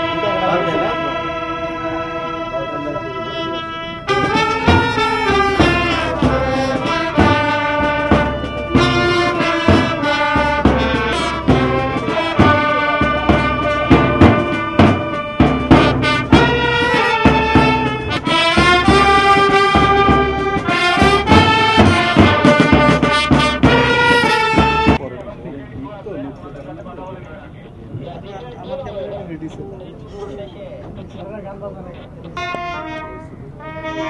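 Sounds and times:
military wind band playing: 0:00.0 - 0:25.0, 0:31.9 - 0:34.0.

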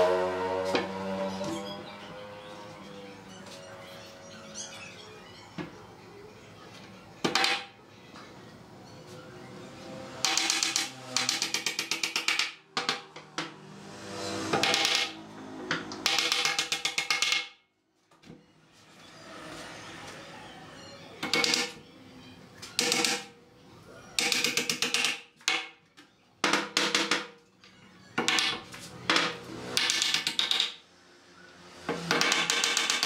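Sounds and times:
hammer driving nails into boards: 0:14.5 - 0:15.2, 0:22.8 - 0:23.3, 0:29.2 - 0:30.8, 0:32.0 - 0:33.0.

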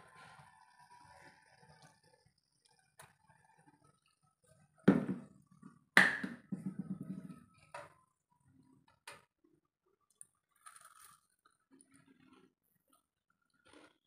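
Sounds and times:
plastic bottle set down on counter: 0:04.9 - 0:05.3
faint crunch of biting: 0:10.1 - 0:14.0.

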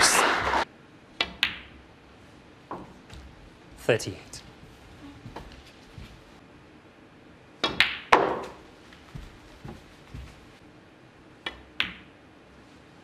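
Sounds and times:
snooker balls clicking: 0:01.2 - 0:01.8, 0:07.6 - 0:08.6, 0:11.4 - 0:12.1.

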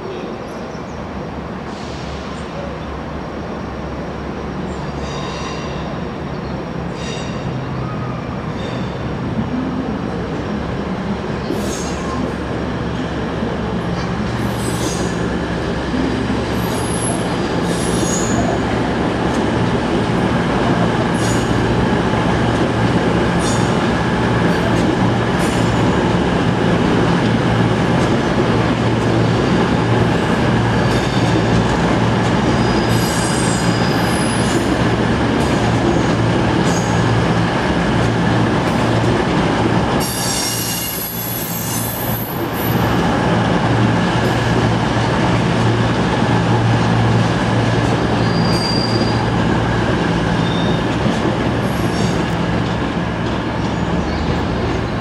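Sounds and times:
diesel locomotive engine droning: 0:00.0 - 0:55.0
wheel squeal: 0:48.2 - 0:49.2, 0:50.4 - 0:50.9.

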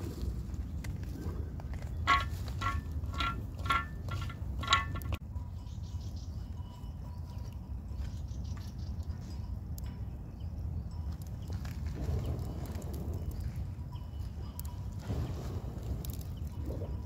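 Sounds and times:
ringing metallic clanks: 0:02.0 - 0:08.2
low rumble: 0:11.0 - 0:17.0.

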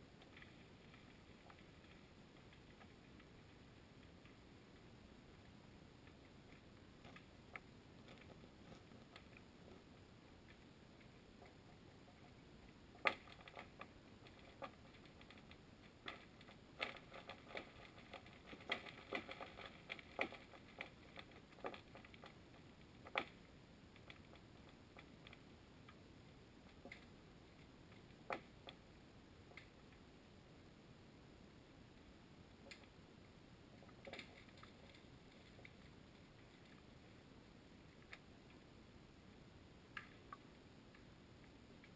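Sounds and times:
low hiss: 0:00.0 - 0:41.9
underwater clicks and ticks: 0:00.2 - 0:04.8, 0:05.4 - 0:26.0, 0:26.6 - 0:28.8, 0:33.8 - 0:36.9, 0:39.9 - 0:41.1.

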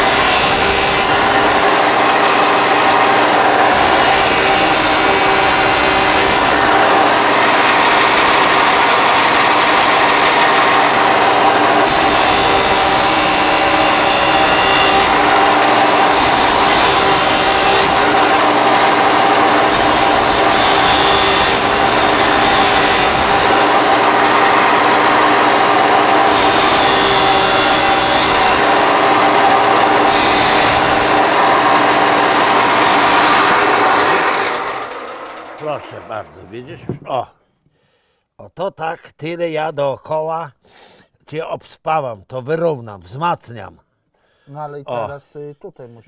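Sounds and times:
angle grinder grinding steel: 0:00.0 - 0:36.7.

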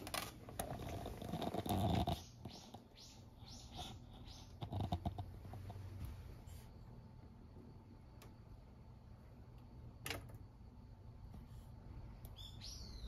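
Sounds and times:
bird chirping: 0:01.7 - 0:04.9, 0:12.2 - 0:13.0.

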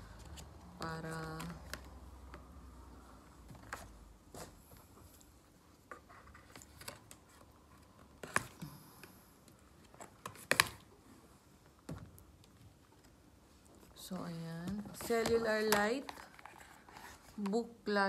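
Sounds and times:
packaging clicks and crackles: 0:14.6 - 0:17.6.

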